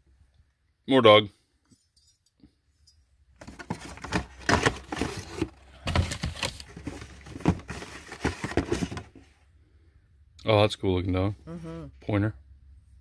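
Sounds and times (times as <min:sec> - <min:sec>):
packing paper rustling: 0:03.4 - 0:09.1.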